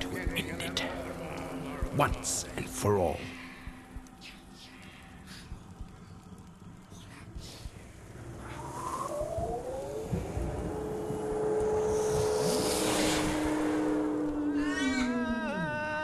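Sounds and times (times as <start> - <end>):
steady droning tones: 0.0 - 15.9
magical whoosh: 8.1 - 15.1.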